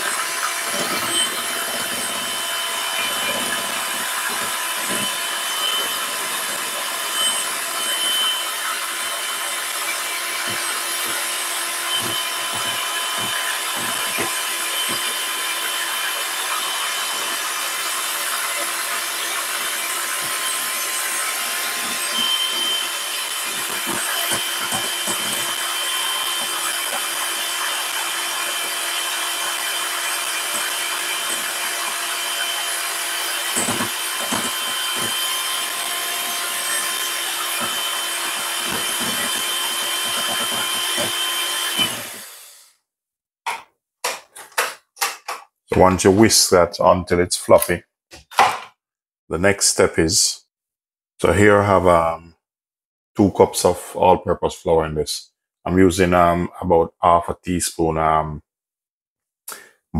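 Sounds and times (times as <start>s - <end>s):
electric hand mixer whining: 0.0s - 42.8s.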